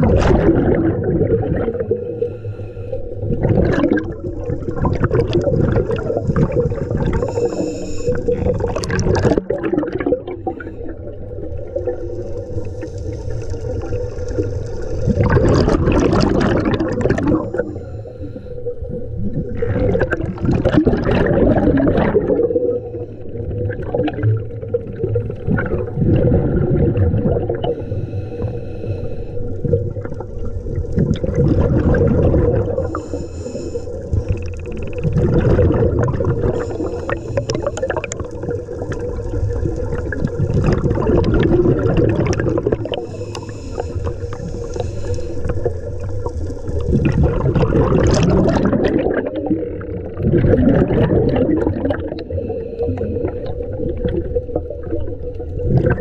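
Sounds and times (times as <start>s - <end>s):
exhaled bubbles gushing: 0.0s - 2.4s, 3.1s - 28.6s, 29.4s - 56.0s
regulator hissing inhale: 1.8s - 3.3s, 7.2s - 8.4s, 10.4s - 11.2s, 12.3s - 15.0s, 17.2s - 19.2s, 27.7s - 29.6s, 32.8s - 34.4s, 36.4s - 38.2s, 42.8s - 46.6s, 52.2s - 53.7s.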